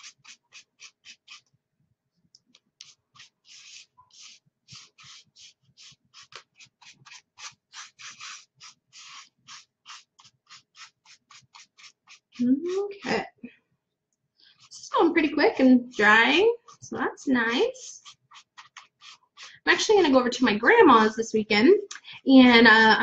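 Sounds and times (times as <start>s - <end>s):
scratchy paintbrush strokes: 0.0s - 1.6s, 2.2s - 13.3s, 14.4s - 21.1s.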